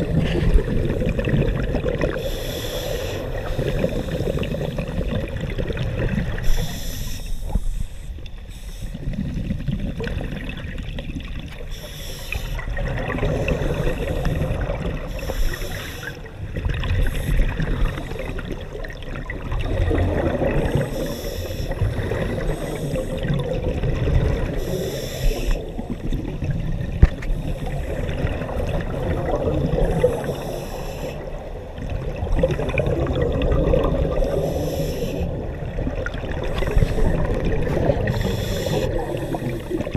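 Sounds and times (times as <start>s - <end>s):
exhaled air bubbling: 0.0s - 39.9s
regulator inhalation hiss: 2.2s - 4.8s, 6.4s - 9.0s, 11.7s - 12.6s, 15.1s - 16.2s, 20.9s - 23.2s, 24.6s - 25.7s, 30.0s - 31.4s, 34.3s - 35.4s, 38.1s - 39.9s.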